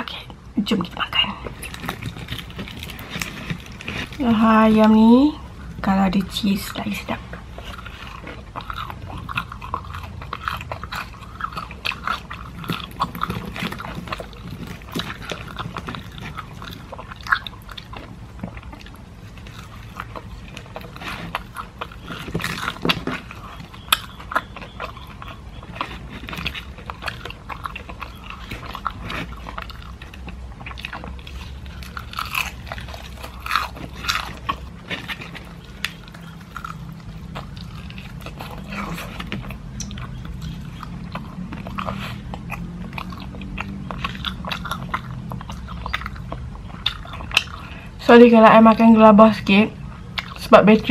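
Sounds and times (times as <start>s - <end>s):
crunchy fried chicken chewing: 0.1s - 50.9s.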